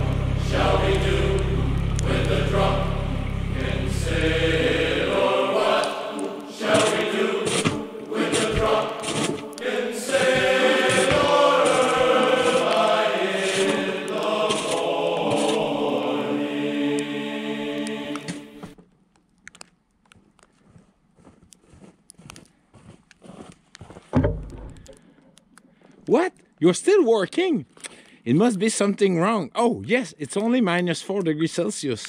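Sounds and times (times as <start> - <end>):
low rumble: 0.0 - 5.5
choir singing long notes: 0.0 - 18.8.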